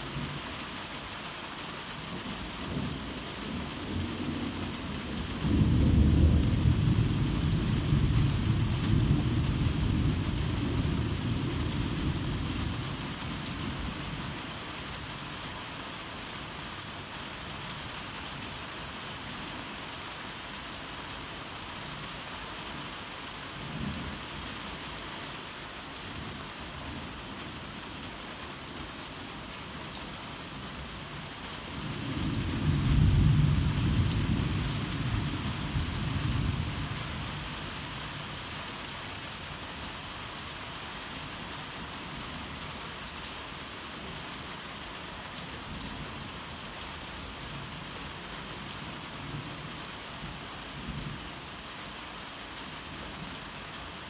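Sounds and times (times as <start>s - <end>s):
heavy rain falling: 0.0s - 54.0s
low rumble of thunder: 2.6s - 14.2s, 31.8s - 37.6s.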